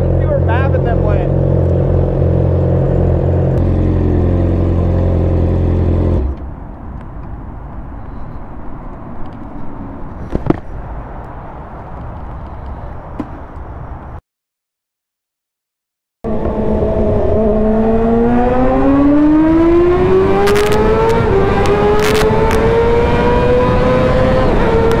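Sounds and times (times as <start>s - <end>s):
motorcycle engine idling: 1.3s - 6.1s.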